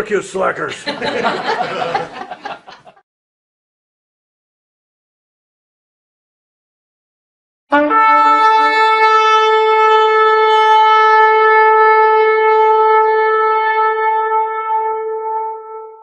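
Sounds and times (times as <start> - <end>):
horn long held note: 7.7 - 16.0.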